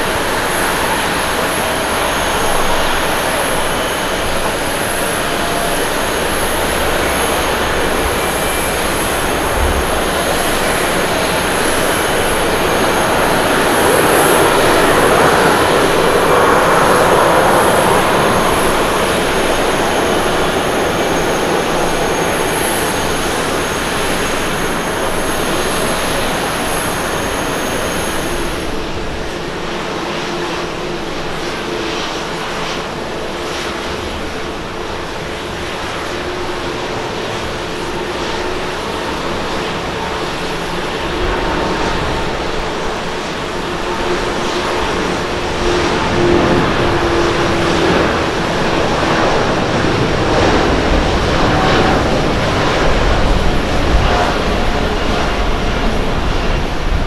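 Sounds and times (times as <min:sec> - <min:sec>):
high engine whine: 0:00.0 - 0:57.0
jet airliner taxiing: 0:00.0 - 0:57.0
quieter jet engine hum: 0:00.0 - 0:57.0.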